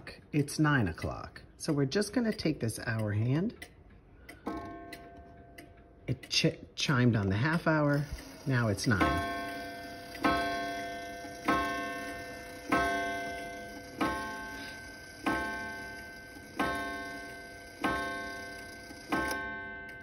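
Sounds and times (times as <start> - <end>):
wall clock striking gong: 8.0 - 20.0.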